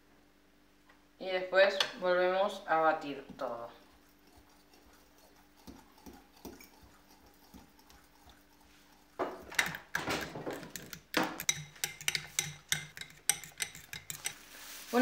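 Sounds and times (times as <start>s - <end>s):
utensil beating batter in glass bowl: 3.0s - 15.0s.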